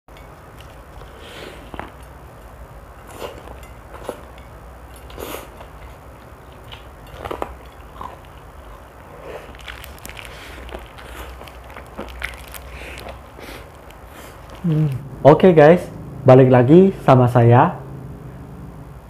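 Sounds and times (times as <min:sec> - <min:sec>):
crunchy chewing of fried chicken: 0:03.0 - 0:14.8.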